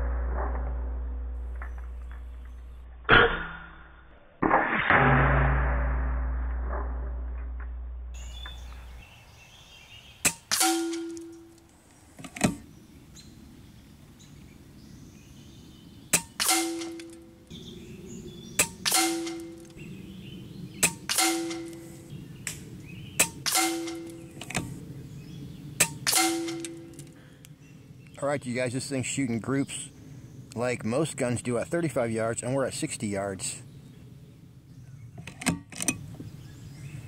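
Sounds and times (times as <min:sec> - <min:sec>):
air rifle shots: 0:10.2 - 0:11.5, 0:16.1 - 0:17.3, 0:18.6 - 0:19.7, 0:20.8 - 0:22.1, 0:23.2 - 0:24.8, 0:25.8 - 0:27.2.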